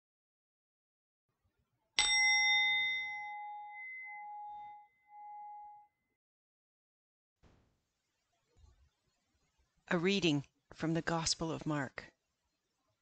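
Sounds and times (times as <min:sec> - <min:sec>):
bell ringing: 0:02.0 - 0:05.9.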